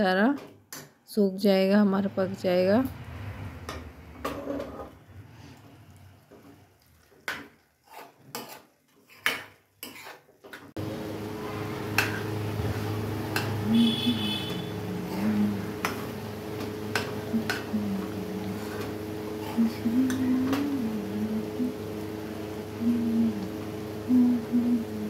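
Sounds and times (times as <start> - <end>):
spoon scraping metal pot: 4.2 - 5.0, 7.8 - 10.3.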